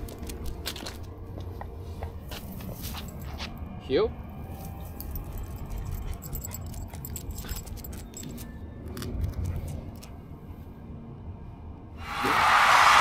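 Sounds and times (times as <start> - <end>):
metal dog tags jingling: 4.8 - 10.1.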